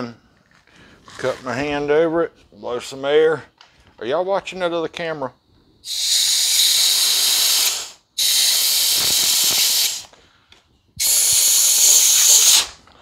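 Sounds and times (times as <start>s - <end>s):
air blow gun hissing: 5.8s - 10.2s, 11.0s - 12.8s.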